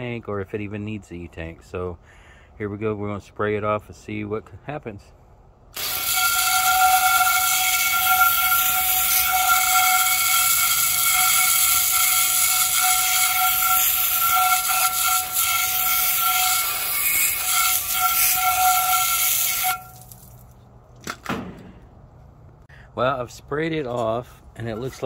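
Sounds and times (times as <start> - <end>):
hose spraying water on metal: 5.8 - 20.3.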